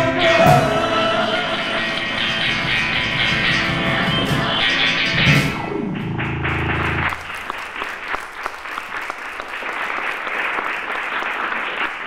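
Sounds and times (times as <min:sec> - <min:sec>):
audience applauding: 0:05.9 - 0:12.0.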